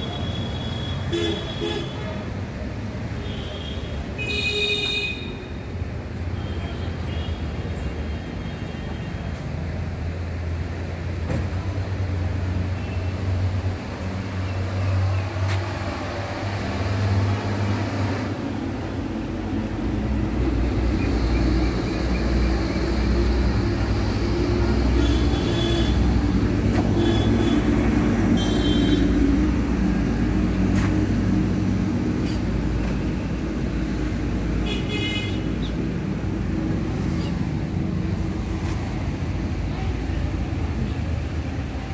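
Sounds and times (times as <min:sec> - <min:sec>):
traffic engine rumble: 0:00.0 - 0:41.9.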